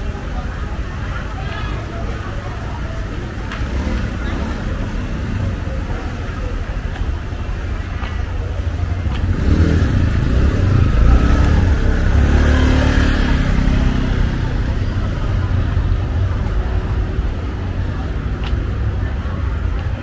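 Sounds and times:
city street traffic: 0.0s - 20.0s
vehicle engine passing close: 8.6s - 19.5s.

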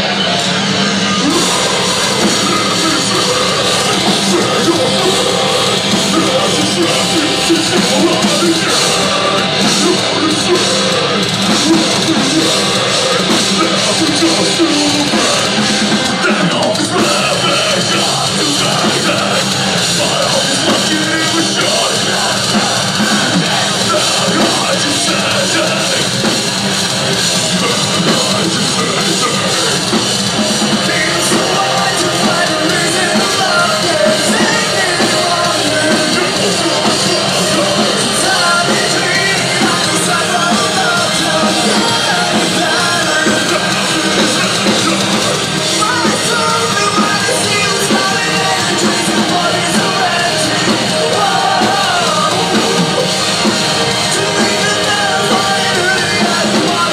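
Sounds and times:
electric guitars: 0.0s - 56.9s
pounding drum kit: 0.0s - 56.9s
shouted vocals: 0.0s - 56.9s.

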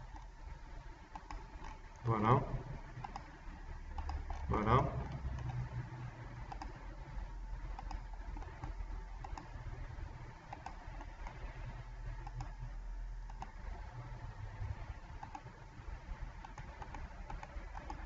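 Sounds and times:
computer mouse clicks: 0.0s - 0.3s, 1.0s - 2.4s, 3.0s - 6.9s, 7.6s - 14.0s, 14.8s - 18.0s
low steady hum: 0.0s - 18.0s.

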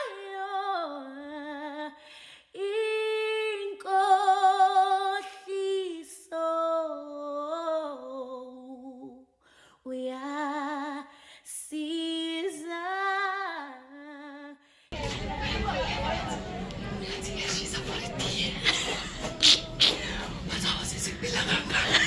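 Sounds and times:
woman singing: 0.0s - 9.2s, 9.8s - 14.6s.

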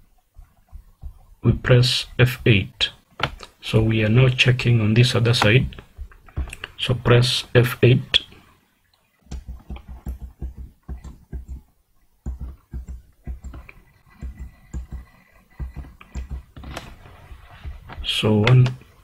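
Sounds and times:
keyboard key tapping: 9.3s - 17.0s.

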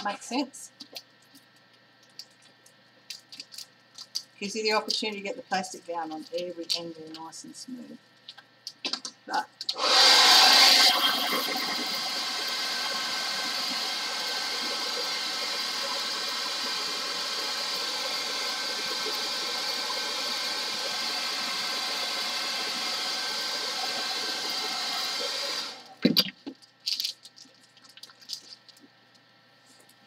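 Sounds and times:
hairdryer running: 9.7s - 26.0s.

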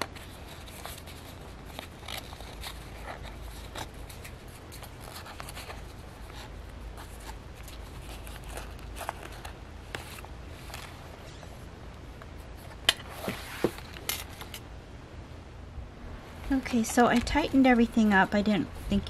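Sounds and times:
paper pages rustling: 0.0s - 14.6s
low steady hum: 0.0s - 19.0s.

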